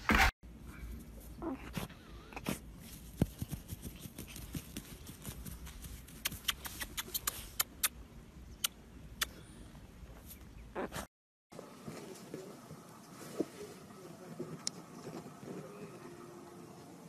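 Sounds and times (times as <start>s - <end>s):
dog digging in soil: 1.0s - 7.8s.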